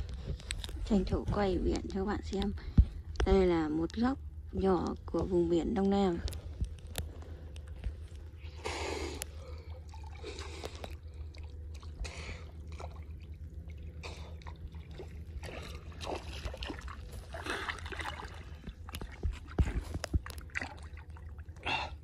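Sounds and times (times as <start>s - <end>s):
wading through muddy water: 7.2s - 22.0s.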